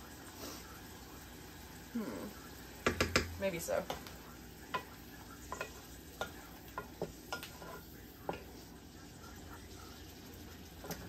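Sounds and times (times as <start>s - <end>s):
faint sizzle: 0.0s - 11.0s
utensil knocking against pan: 2.8s - 4.0s.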